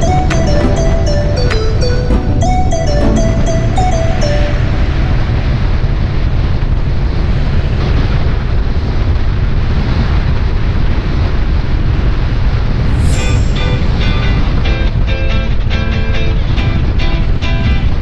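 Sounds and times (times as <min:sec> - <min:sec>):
wind rush over microphone: 0:05.7 - 0:16.9.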